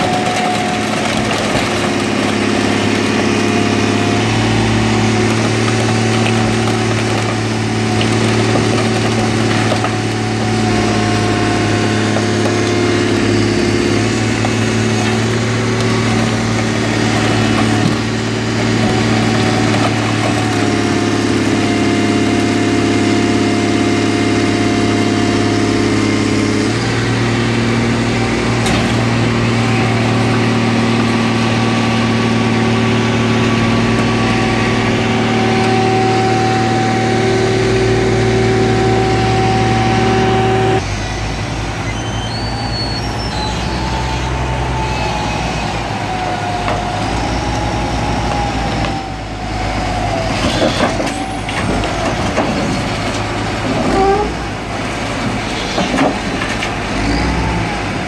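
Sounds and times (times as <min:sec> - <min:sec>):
car crusher engine running: 0:00.0 - 0:58.0.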